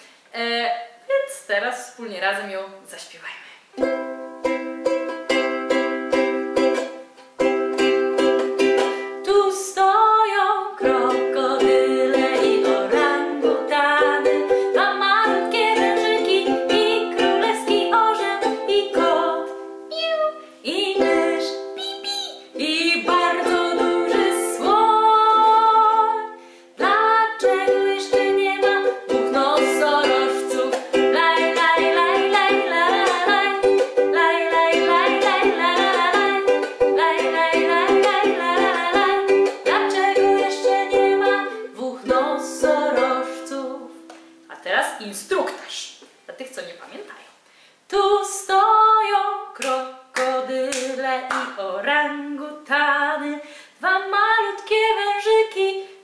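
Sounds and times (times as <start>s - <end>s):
ukulele strummed chords: 3.8s - 9.4s, 10.3s - 44.5s
woman singing: 8.8s - 21.7s, 22.4s - 44.1s, 47.9s - 56.0s.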